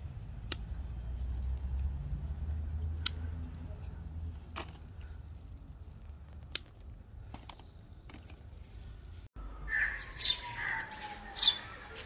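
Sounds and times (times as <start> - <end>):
birds calling: 9.6 - 12.0.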